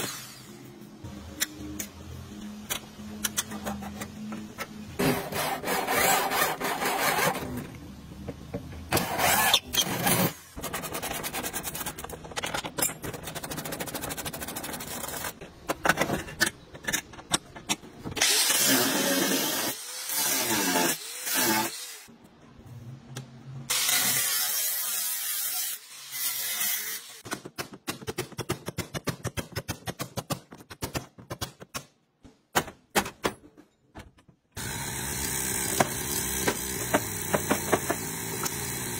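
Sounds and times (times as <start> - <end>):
angle grinder cutting metal: 18.2 - 22.1, 23.7 - 27.2.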